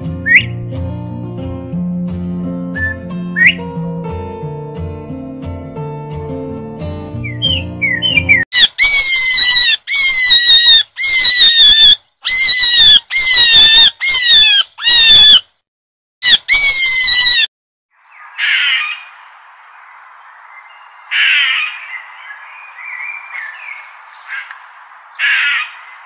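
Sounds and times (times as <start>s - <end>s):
light background music: 0.0s - 8.4s
loud squawking calls: 7.2s - 15.4s, 16.2s - 17.5s, 18.4s - 19.1s, 21.1s - 24.6s, 25.2s - 26.0s.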